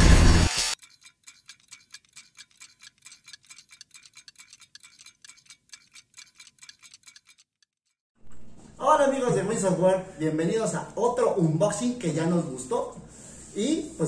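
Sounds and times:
fast clock ticking: 0:00.8 - 0:07.9.

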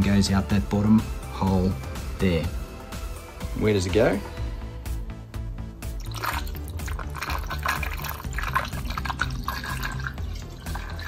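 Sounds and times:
water pouring and splashing: 0:06.0 - 0:11.0.

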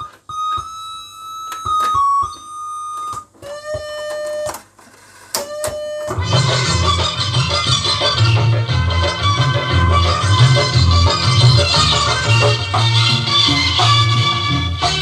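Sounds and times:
electronic tune: 0:05.4 - 0:15.0
music with strong bass: 0:06.1 - 0:15.0.

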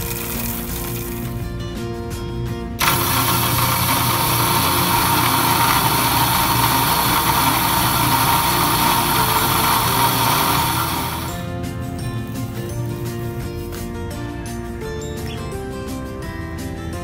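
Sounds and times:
coffee grinder grinding beans: 0:00.0 - 0:01.4, 0:02.8 - 0:11.4.

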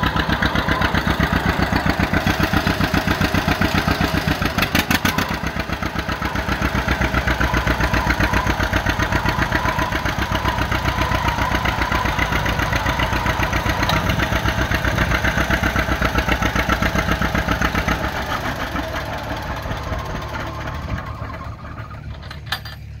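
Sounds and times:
tractor engine pulsing exhaust: 0:00.0 - 0:23.0.

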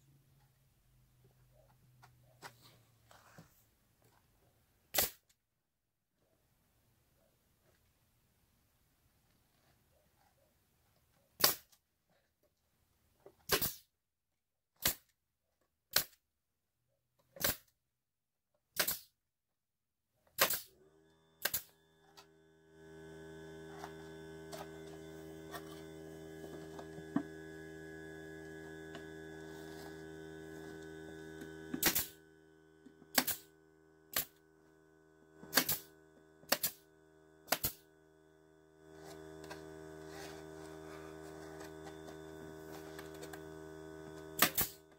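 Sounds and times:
pneumatic nailer firing: 0:04.9 - 0:05.2, 0:11.4 - 0:11.7, 0:13.5 - 0:13.8, 0:14.8 - 0:15.1, 0:17.4 - 0:17.7, 0:18.8 - 0:19.1, 0:20.4 - 0:20.8, 0:21.4 - 0:21.8, 0:30.6 - 0:34.5, 0:35.4 - 0:37.9, 0:42.4 - 0:44.9
motor humming: 0:20.7 - 0:44.9.

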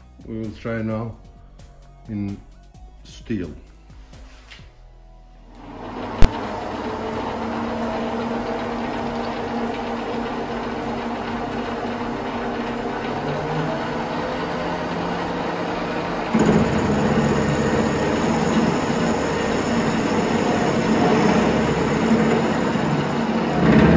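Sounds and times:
metal lathe humming: 0:05.6 - 0:23.9.

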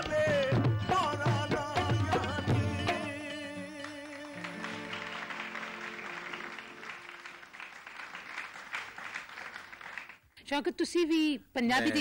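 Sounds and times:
harmonium chords: 0:00.0 - 0:07.6
audience applause: 0:04.2 - 0:10.2.

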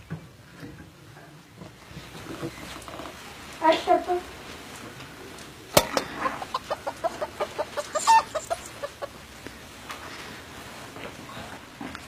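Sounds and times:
hen clucking: 0:05.8 - 0:09.7.

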